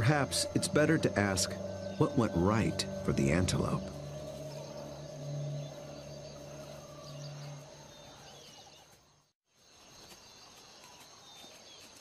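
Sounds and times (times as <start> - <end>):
low sustained music notes: 0.0 - 8.9
high insect trill: 0.0 - 12.0.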